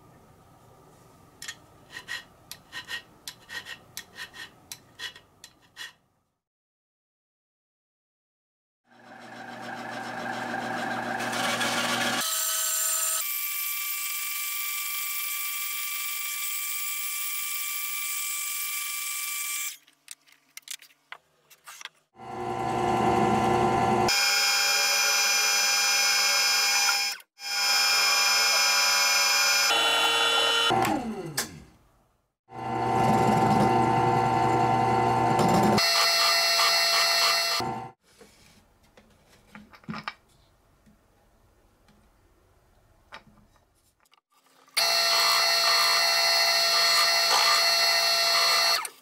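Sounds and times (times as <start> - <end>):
band saw cutting wood: 8.9 - 13.4, 32.5 - 38.0, 44.8 - 49.0
drill press drilling wood: 9.0 - 12.2.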